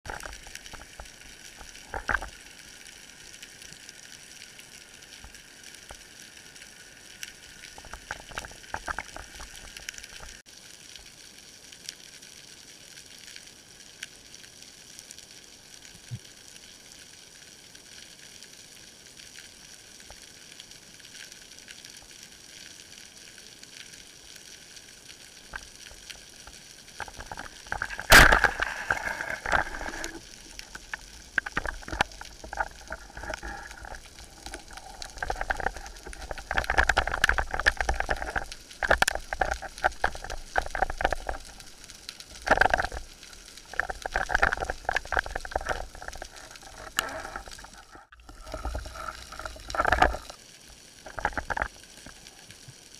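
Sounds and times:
faint underwater crackling: 0:00.0 - 0:52.9
rushing bubbling water: 0:25.1 - 0:52.9
speargun firing crack: 0:28.1 - 0:28.8.

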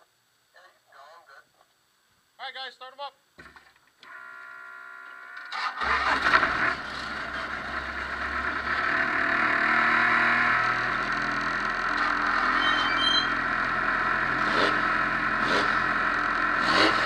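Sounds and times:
starter motor whine: 0:03.5 - 0:17.0
race car engine starting and revving: 0:05.4 - 0:17.0.

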